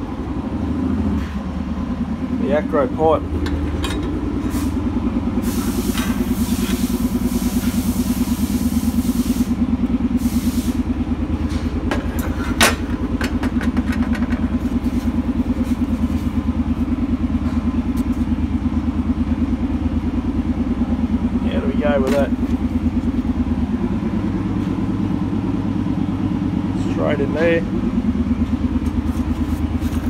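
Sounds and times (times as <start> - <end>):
engine idling: 0.0 - 30.0
metal pipes clinking and knocking: 3.4 - 4.5
hiss: 5.4 - 9.6, 10.2 - 10.9.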